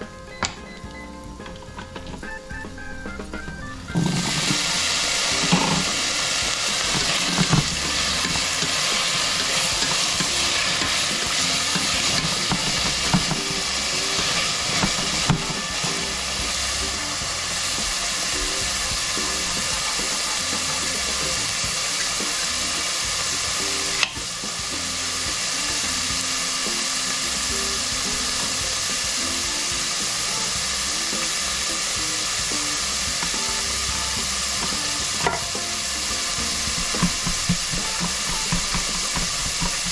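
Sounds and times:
vegetables sizzling in oil: 0.0s - 39.9s.

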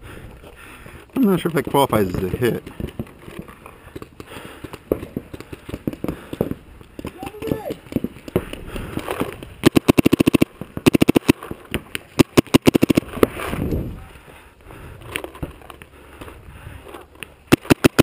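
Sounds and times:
paintball markers firing: 1.3s - 13.2s, 17.2s - 18.0s.

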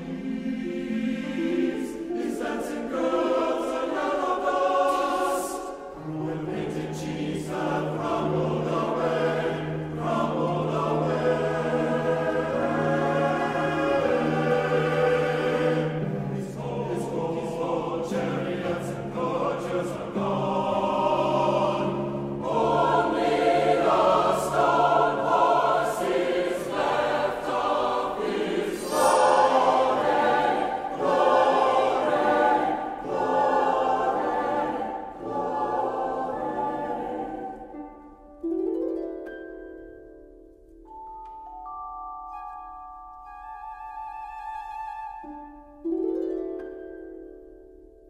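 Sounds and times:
mixed choir singing: 0.0s - 38.0s
cello: 0.0s - 38.6s
harp: 0.0s - 48.0s
bell tree sweep: 28.8s - 31.2s.

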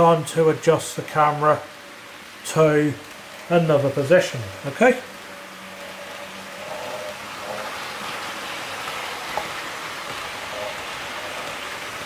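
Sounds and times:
model train wheels rolling on rails: 2.6s - 12.0s.

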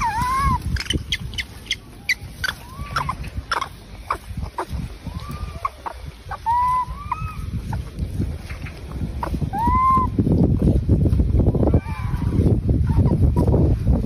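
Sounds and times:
animal chirping calls: 0.0s - 7.8s.

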